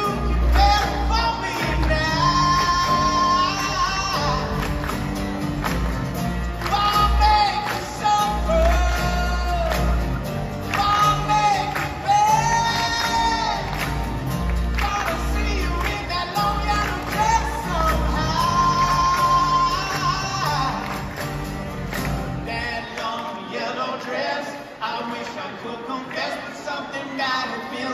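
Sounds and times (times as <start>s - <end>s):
male voices singing together: 0.0s - 5.0s, 6.6s - 21.2s, 22.4s - 27.9s
bass guitar: 0.0s - 22.7s
acoustic guitars: 0.0s - 27.9s.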